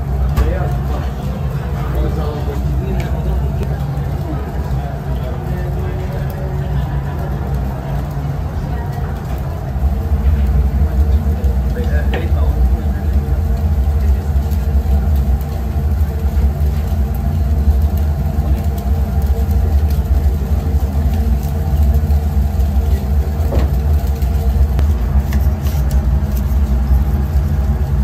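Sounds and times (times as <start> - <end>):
low mechanical rumble: 0.0 - 28.0.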